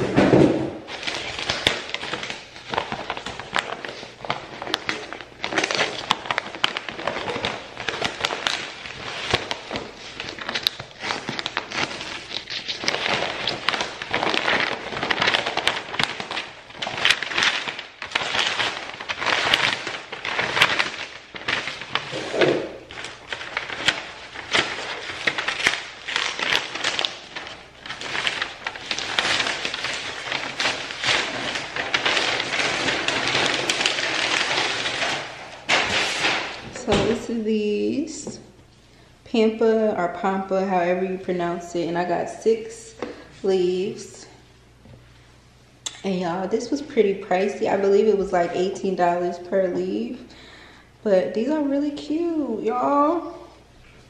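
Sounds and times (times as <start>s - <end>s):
packaging crackling and tearing: 0.9s - 37.2s.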